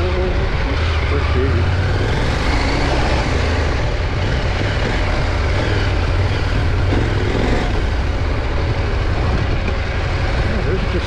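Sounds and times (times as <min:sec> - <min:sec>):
motorcycle engine running: 0:00.0 - 0:11.0
wind noise: 0:02.0 - 0:10.6.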